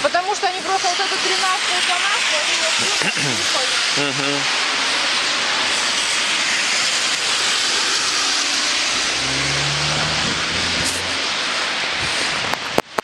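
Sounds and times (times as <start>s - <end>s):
rain hissing: 0.0s - 13.0s
traffic on wet road: 0.0s - 13.0s
vehicle engine passing: 6.8s - 12.5s.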